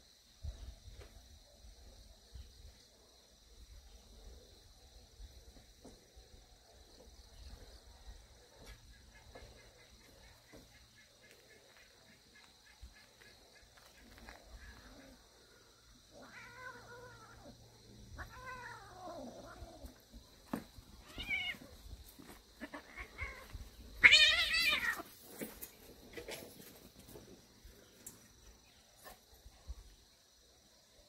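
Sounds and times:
cats yowling and meowing: 0:16.1 - 0:20.0, 0:21.0 - 0:21.8, 0:22.6 - 0:25.2.

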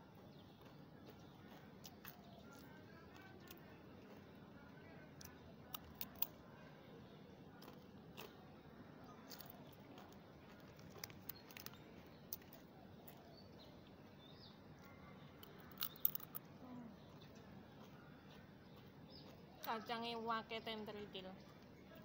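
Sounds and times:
crunching of cracker being chewed: 0:00.5 - 0:04.4, 0:05.2 - 0:06.4, 0:07.5 - 0:13.2, 0:14.8 - 0:16.5.

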